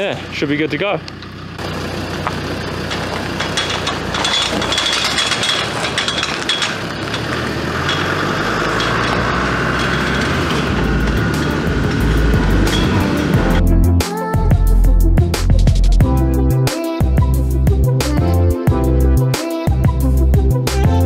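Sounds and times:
car engine idling: 0.0 - 13.6.

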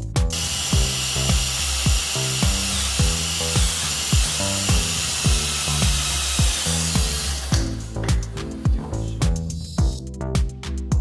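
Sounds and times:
background music with drum beat: 0.0 - 11.0
cordless drill whine: 0.3 - 8.0.

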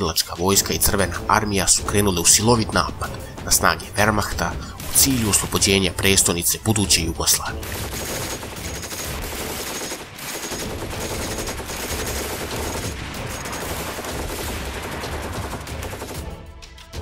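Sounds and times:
machine guns and rifles firing: 2.7 - 6.4, 7.5 - 16.5.

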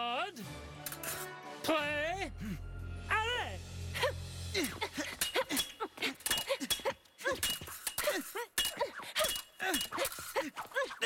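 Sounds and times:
cries of effort: 4.0 - 11.0
fencing blades clashing: 4.8 - 11.0.

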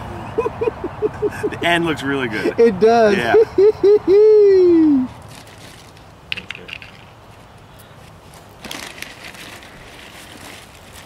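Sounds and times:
plastic bag crinkling: 5.2 - 6.2, 8.3 - 11.0
plastic toys clicking on pavement: 5.6 - 7.6.

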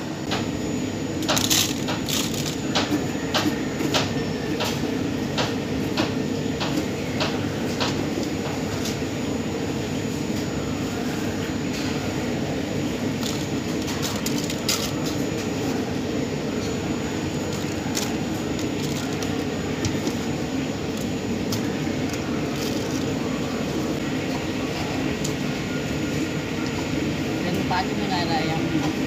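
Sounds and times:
steady mechanical hum: 0.0 - 29.0
plastic food boxes crinkling: 1.2 - 2.7.

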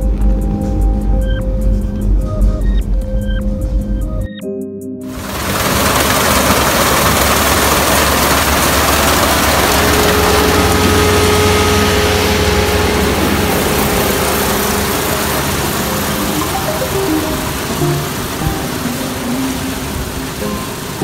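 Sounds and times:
rush of machinery noise: 5.1 - 21.0
combine harvester engine hum: 5.2 - 21.0.

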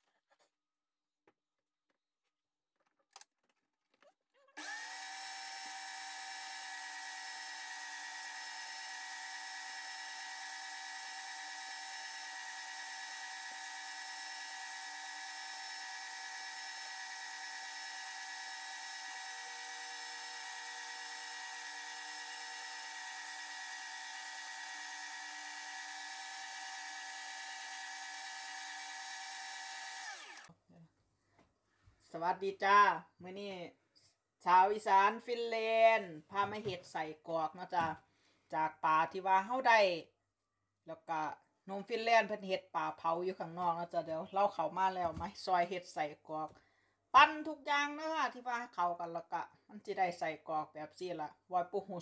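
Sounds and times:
electric meat grinder running: 4.6 - 30.5.

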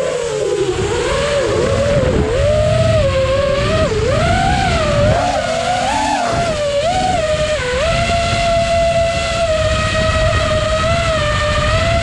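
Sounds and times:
drone motors whining: 0.0 - 12.0.

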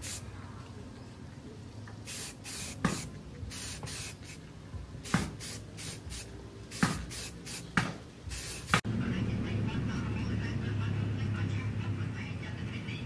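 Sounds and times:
aerosol spray hissing: 0.0 - 0.2, 2.0 - 4.4, 5.0 - 8.8
spray can click: 2.1 - 4.3, 6.7 - 8.8.

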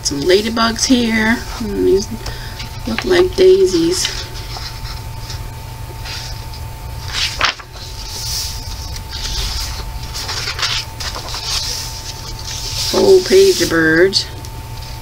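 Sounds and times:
book pages rustling and sliding: 4.1 - 5.4, 6.0 - 14.2.

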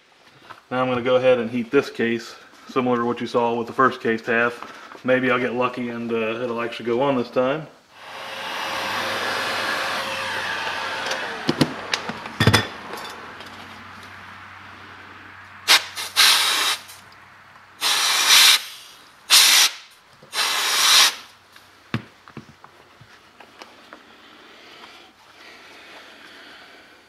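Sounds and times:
loud hissing rushes: 15.6 - 17.0, 17.8 - 21.3
heat gun blower hiss: 15.7 - 17.0, 17.8 - 21.3.

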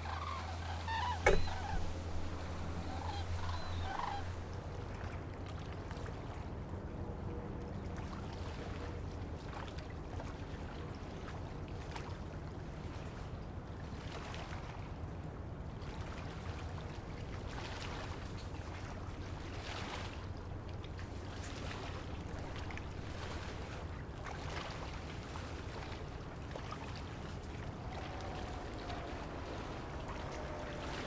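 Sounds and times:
bird calls: 0.0 - 4.6, 27.4 - 31.0
water wash: 0.0 - 5.3, 21.8 - 31.0
low steady hum: 0.0 - 8.6, 21.9 - 31.0.

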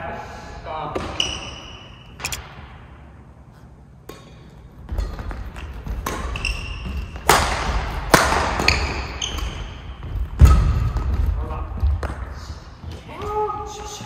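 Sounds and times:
sneakers squeaking: 1.0 - 2.5, 3.6 - 14.0
racket hitting shuttlecock: 4.0 - 9.6.

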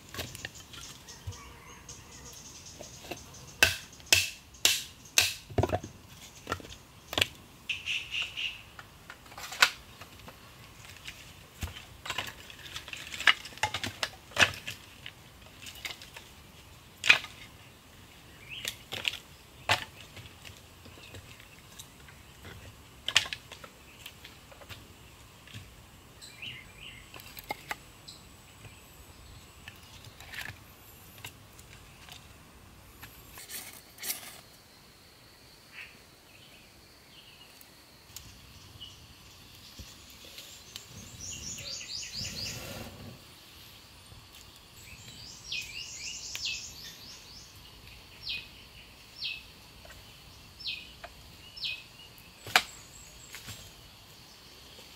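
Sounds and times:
firewood sticks knocking together: 3.0 - 7.4, 8.7 - 16.4, 18.6 - 25.7, 52.4 - 53.6.

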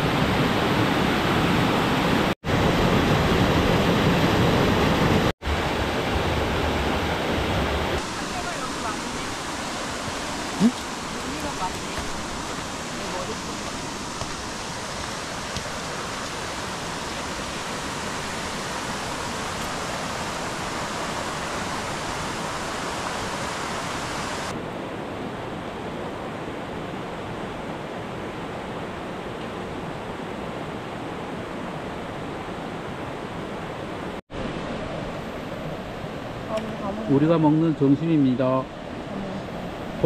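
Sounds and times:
mountain stream rushing over rocks: 0.0 - 24.6.

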